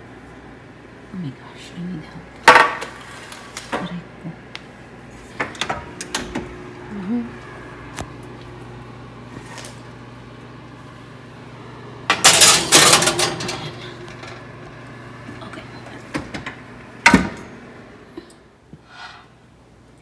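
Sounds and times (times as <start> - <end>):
steady low hum: 0.0 - 20.0
bakeware clattering on oven racks: 12.1 - 14.0.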